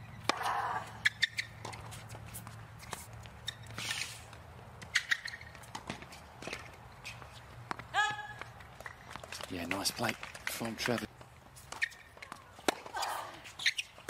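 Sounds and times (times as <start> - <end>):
sneaker squeaks on court: 1.0 - 2.1, 3.4 - 4.2, 4.8 - 6.1, 13.5 - 14.0
tennis ball bounces: 4.8 - 13.9.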